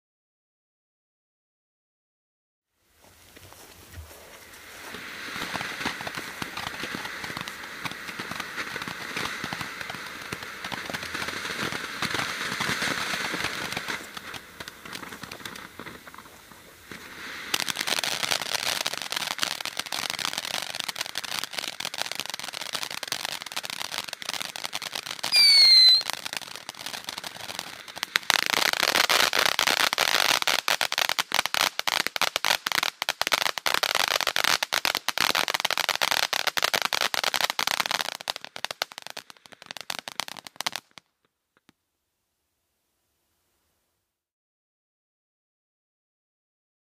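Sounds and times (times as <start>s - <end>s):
firework crackling: 3.6s - 41.1s
firework sparks hissing: 3.8s - 41.0s
falling whistle: 25.3s - 26.1s.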